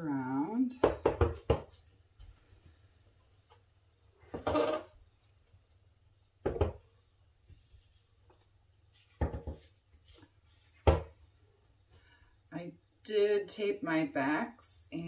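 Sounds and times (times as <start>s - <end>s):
canvas knocking on table: 9.1s - 9.7s.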